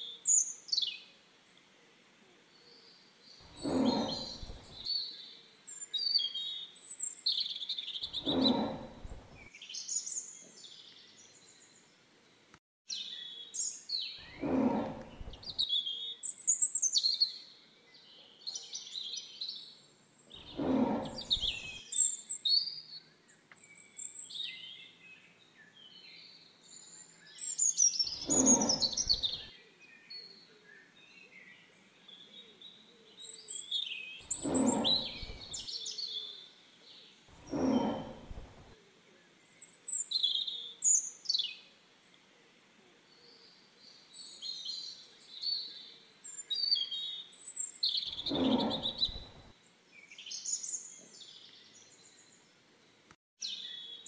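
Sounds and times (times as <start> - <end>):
high bird chirping: 3.5 - 4.8, 8.0 - 9.5, 20.4 - 21.8, 28.1 - 29.5, 34.2 - 35.6, 37.4 - 38.6, 48.1 - 49.5
tiger roaring: 3.5 - 4.9, 8.1 - 9.5, 14.2 - 15.6, 20.4 - 21.8, 28.2 - 29.5, 34.3 - 35.6, 37.3 - 38.7, 48.1 - 49.5.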